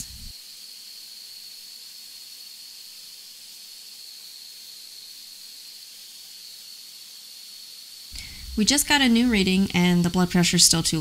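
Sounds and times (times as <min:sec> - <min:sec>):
high-pitched whine: 0:00.0 - 0:11.0
steady background hiss: 0:06.3 - 0:11.0.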